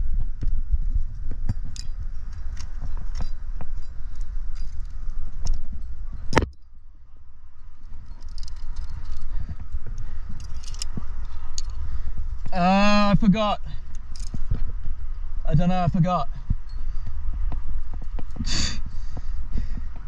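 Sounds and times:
steady low rumble: 0.0 - 20.0
climbing gear clinking: 1.2 - 18.5
carabiner gates clicking: 1.5 - 6.8, 7.9 - 11.9, 13.8 - 14.6.

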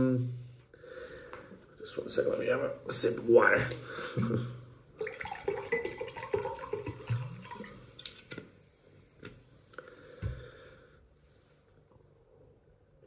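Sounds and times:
water pouring into glass: 5.0 - 8.3.

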